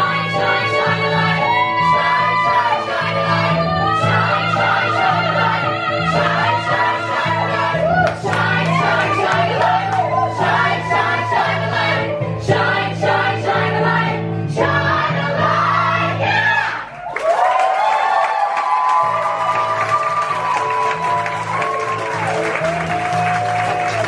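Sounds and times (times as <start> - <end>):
group of singers: 0.0 - 16.9.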